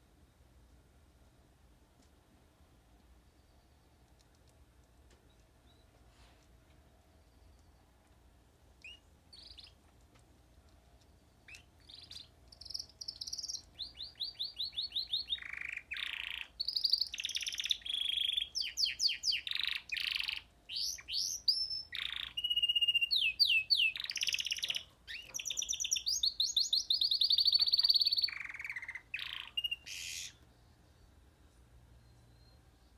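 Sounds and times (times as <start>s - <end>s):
canary singing: 8.8s - 9.8s, 11.2s - 31.1s.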